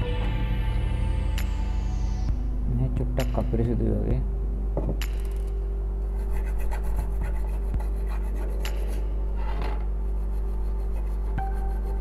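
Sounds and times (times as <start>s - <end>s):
steady low hum: 0.0s - 12.0s
scratchy rubbing and scrapes: 6.2s - 12.0s.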